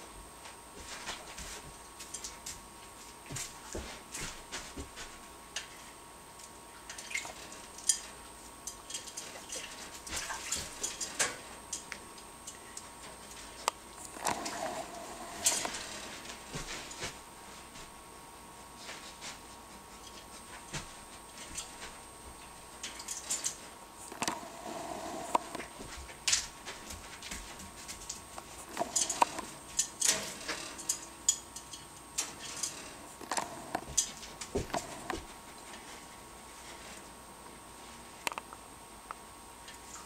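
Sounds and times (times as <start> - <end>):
clicks and metallic clinks at birdcage: 6.4 - 13.7, 22.8 - 23.6, 28.0 - 35.2.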